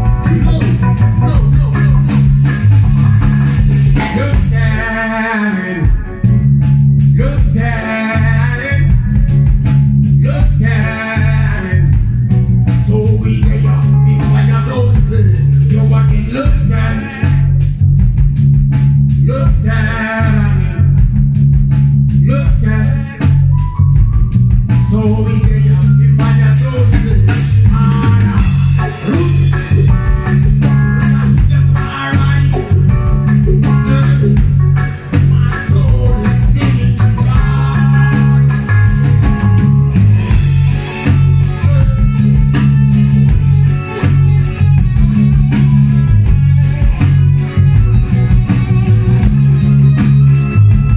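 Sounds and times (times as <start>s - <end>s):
man singing: 0.0s - 2.6s, 4.0s - 6.1s, 7.1s - 9.2s, 10.2s - 17.6s, 19.2s - 21.1s, 22.2s - 23.7s, 24.7s - 39.2s, 40.2s - 44.2s
live reggae band playing: 0.0s - 50.9s.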